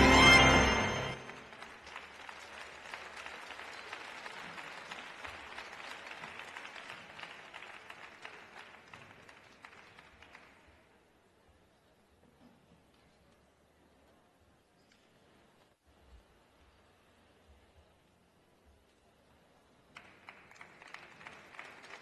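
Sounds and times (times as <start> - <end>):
audience applauding: 0.0 - 10.7, 19.9 - 22.0.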